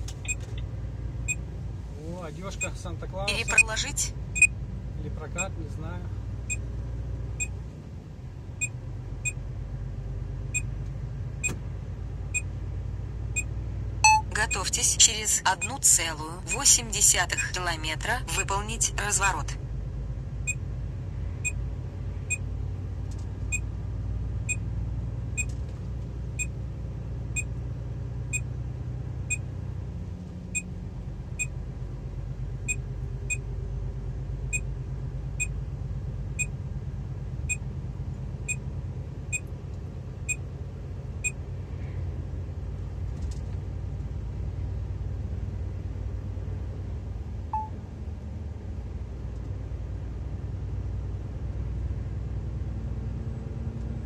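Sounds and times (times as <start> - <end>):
truck engine and road noise: 0.0 - 54.0
short high electronic beep: 14.0 - 14.5.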